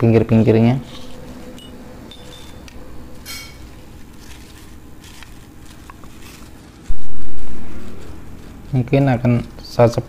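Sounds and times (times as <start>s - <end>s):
plastic sheet crinkling: 3.6s - 9.8s.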